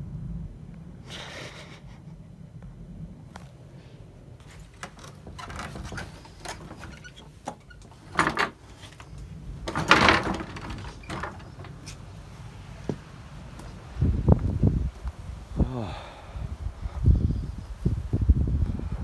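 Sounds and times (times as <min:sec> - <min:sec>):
wind buffeting microphone: 0:00.0 - 0:19.0
rustling clattering bursts: 0:04.4 - 0:12.2
knocks: 0:09.7 - 0:11.8.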